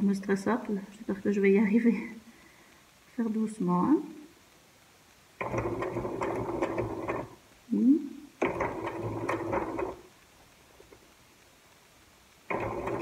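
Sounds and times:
sewing machine stitching: 5.4 - 7.4, 8.4 - 10.1, 12.5 - 13.0.

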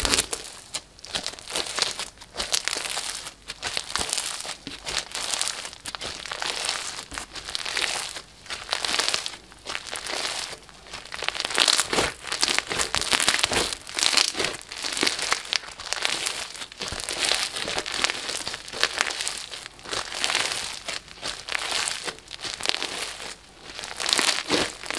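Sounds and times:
slime crackling and popping: 0.0 - 24.9.

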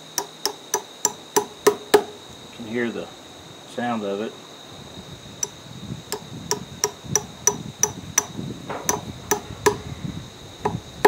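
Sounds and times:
hammer tapping metal probe: 0.0 - 2.2, 5.4 - 9.9.

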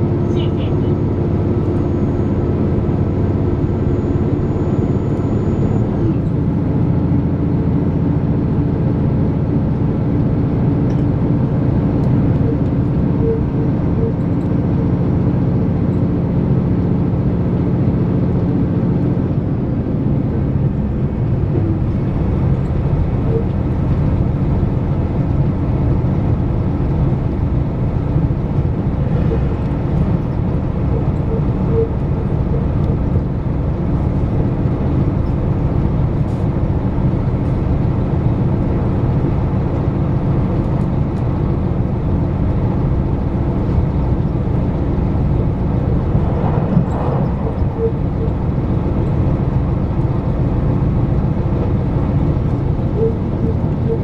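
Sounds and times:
diesel engine hum: 0.0 - 54.0
train wheels rumbling on rail: 0.0 - 54.0.

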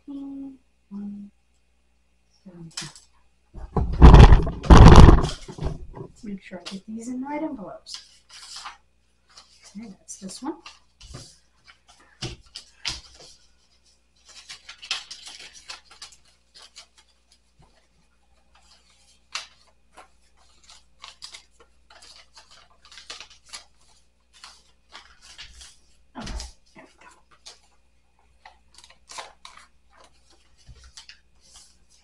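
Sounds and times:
paper rustling and scraping: 3.6 - 6.2, 7.9 - 9.8, 10.6 - 32.0.

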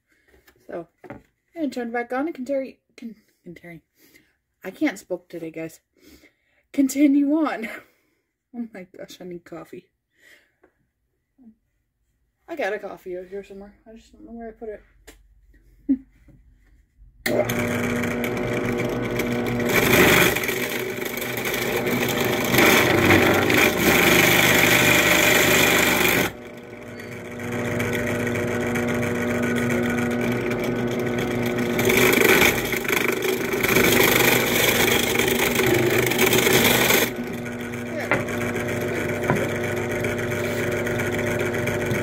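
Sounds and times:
drill press motor hum: 17.2 - 42.0
drill bit boring into wood: 17.3 - 42.0.

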